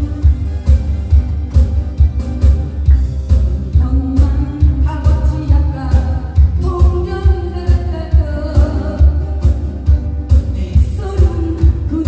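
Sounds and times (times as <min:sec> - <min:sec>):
acoustic guitar: 0:00.0 - 0:12.0
low pulsing beat: 0:00.0 - 0:12.0
woman singing through microphone: 0:03.7 - 0:09.6, 0:10.3 - 0:12.0.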